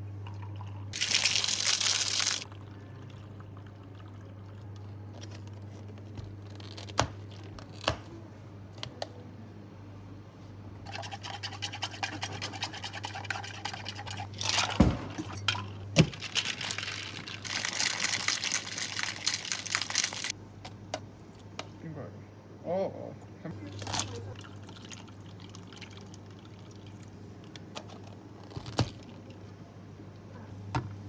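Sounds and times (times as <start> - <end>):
steady low hum: 20.3 - 31.0.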